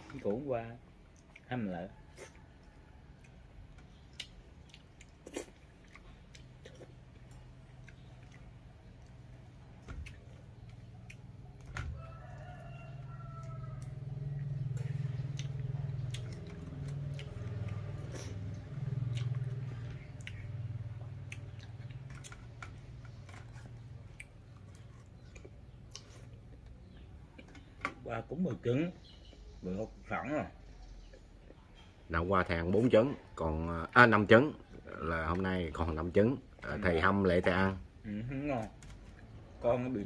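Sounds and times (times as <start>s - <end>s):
chewing: 1.0s - 27.8s
rooster crowing: 11.8s - 15.3s.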